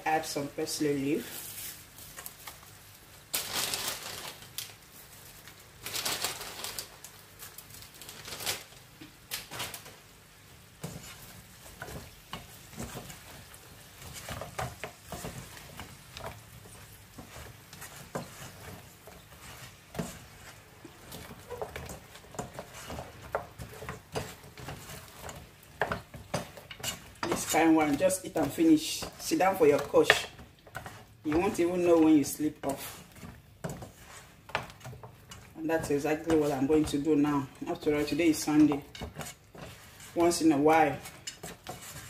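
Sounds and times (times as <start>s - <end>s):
sauce sizzling: 8.7s - 42.0s
spatula scraping a pan: 10.6s - 42.0s.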